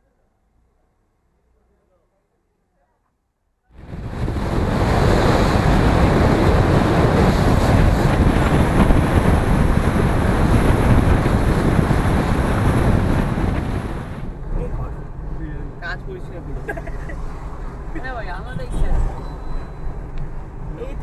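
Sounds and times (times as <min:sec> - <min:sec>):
road noise: 0:03.7 - 0:21.0
wind buffeting microphone: 0:03.8 - 0:15.3.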